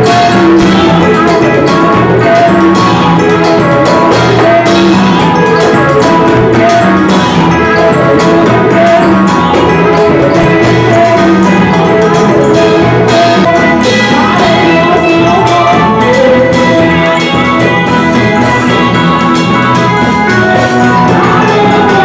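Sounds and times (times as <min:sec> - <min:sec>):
bass guitar: 0:00.0 - 0:22.0
drums playing a steady beat: 0:00.0 - 0:22.0
women singing into microphones: 0:13.5 - 0:17.0.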